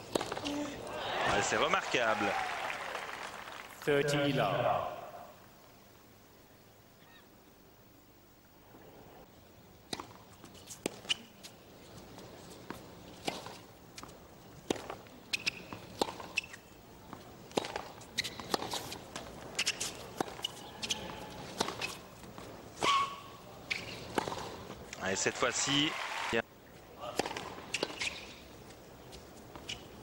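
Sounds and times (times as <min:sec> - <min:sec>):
tennis ball bouncing: 0:00.0 - 0:00.7, 0:09.9 - 0:11.3, 0:12.7 - 0:24.8, 0:27.1 - 0:29.9
racket hitting ball: 0:00.1 - 0:00.6, 0:17.5 - 0:22.0, 0:22.8 - 0:24.6, 0:27.1 - 0:28.3
shoe squeaks on court: 0:15.3 - 0:16.7, 0:18.1 - 0:22.1, 0:22.8 - 0:24.5, 0:27.6 - 0:28.4, 0:29.6 - 0:30.0.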